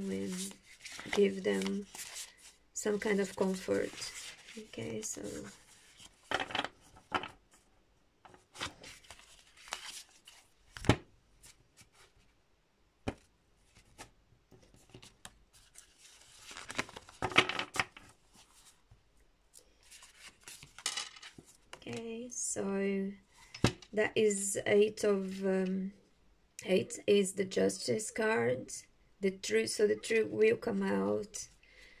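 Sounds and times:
cards riffling and sliding: 8.6s - 12.1s.

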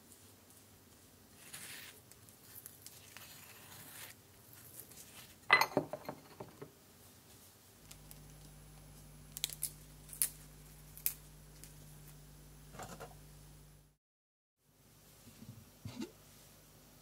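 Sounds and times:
bowl clattering on countertop: 5.5s - 6.7s.

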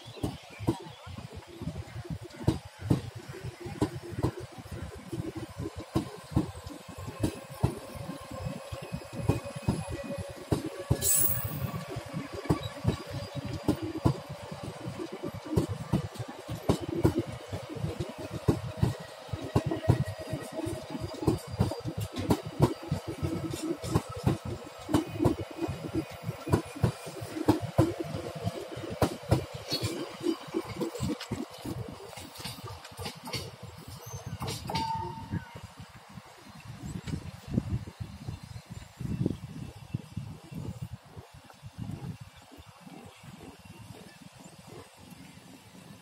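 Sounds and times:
train rumbling past: 0.2s - 37.8s
wheel clatter over rail joints: 5.0s - 35.4s.

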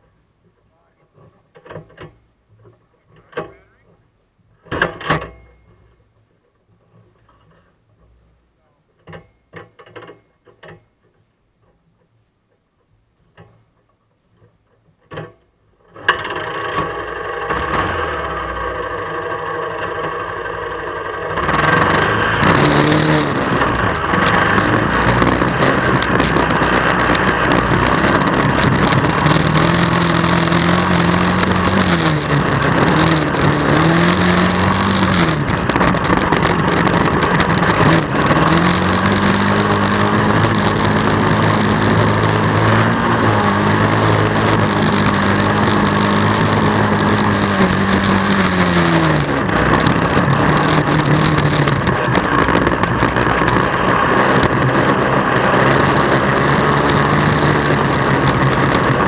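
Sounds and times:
atv engine idling and revving: 15.0s - 59.0s.

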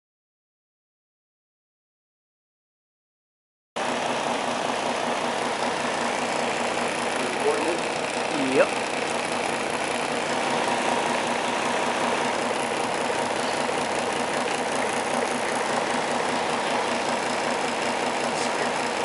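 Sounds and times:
electric fan motor whirring: 3.8s - 19.0s.

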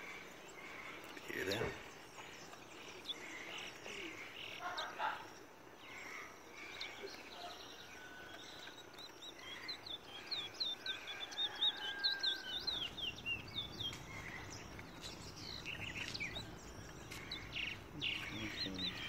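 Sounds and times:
finch chirping: 0.0s - 19.0s.

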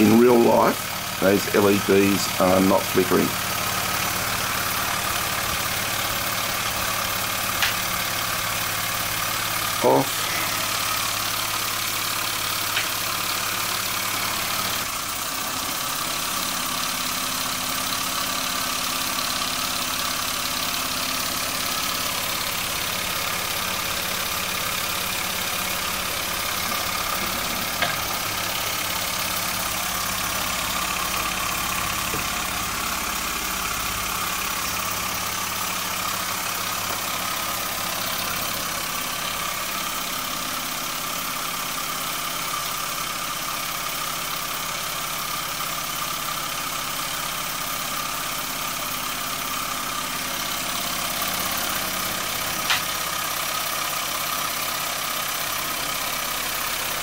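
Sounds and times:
steam engine running with hiss: 0.0s - 57.0s
sharp click: 7.6s - 7.8s, 52.7s - 52.9s.

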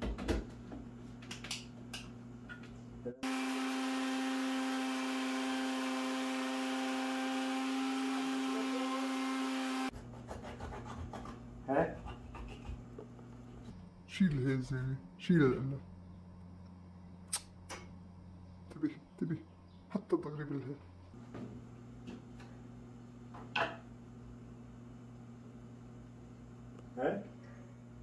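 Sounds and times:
blender motor whirring: 3.2s - 9.9s.

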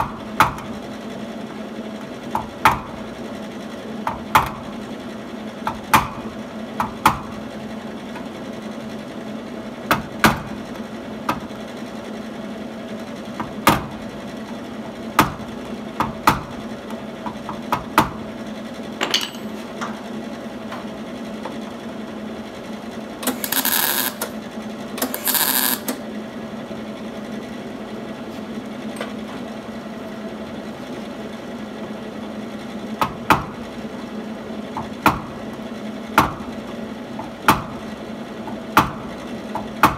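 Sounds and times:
metal tools tapping and clinking: 19.0s - 19.7s
welding tacks on sheet metal: 23.2s - 24.4s, 25.0s - 26.0s.

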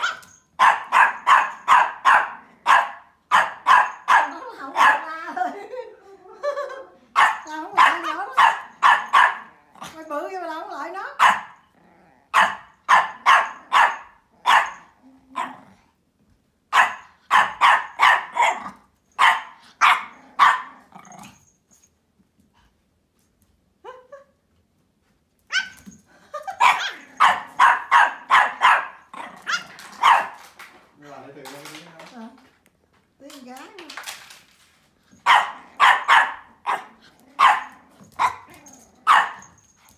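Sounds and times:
small dog barking: 0.0s - 5.2s, 7.1s - 9.6s, 11.2s - 11.6s, 12.3s - 15.6s, 16.7s - 20.8s, 26.6s - 30.4s, 35.2s - 39.5s.

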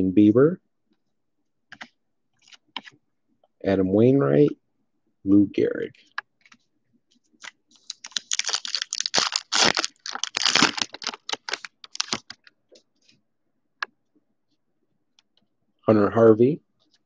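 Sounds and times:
foil wrapper crinkling and tearing: 7.8s - 12.4s.

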